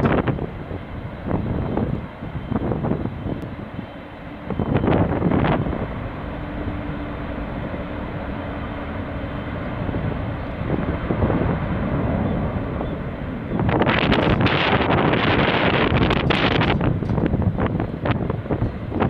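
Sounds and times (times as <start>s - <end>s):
distant jet engines: 0.0s - 19.0s
wind buffeting microphone: 0.0s - 19.0s.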